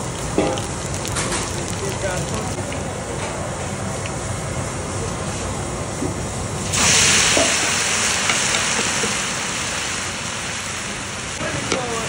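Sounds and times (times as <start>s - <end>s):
food frying in a pan: 0.0s - 3.6s, 6.6s - 12.0s
loud sizzle of wet food in oil: 0.0s - 12.0s.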